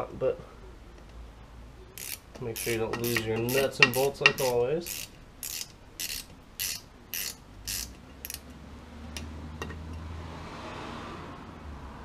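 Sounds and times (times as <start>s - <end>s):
ratchet wrench ratcheting: 2.0s - 8.5s.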